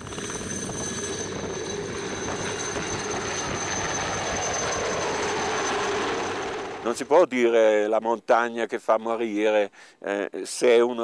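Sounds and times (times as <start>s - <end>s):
helicopter rotor noise: 0.0s - 7.2s
helicopter turbine whine: 0.0s - 7.3s.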